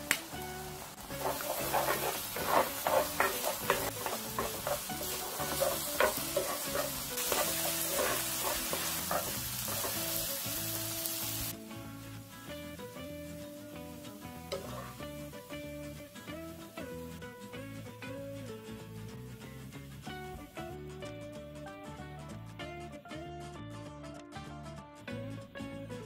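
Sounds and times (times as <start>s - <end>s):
food sizzling in frying pan: 0.0s - 20.9s
soft background music: 0.0s - 26.0s
wooden spatula scraping pan: 1.0s - 10.4s, 14.5s - 15.1s.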